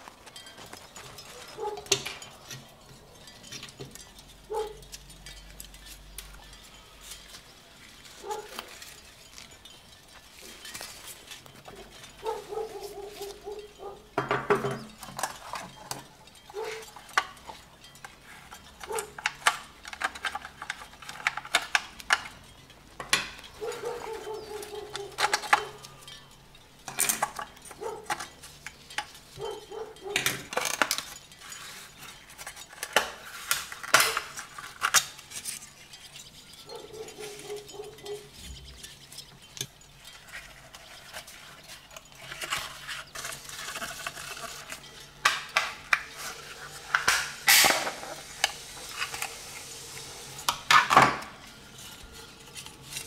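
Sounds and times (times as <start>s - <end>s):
small metal parts clinking: 0.0s - 53.0s
drawn-out squeaks: 0.2s - 19.8s, 23.4s - 32.8s, 33.6s - 47.0s.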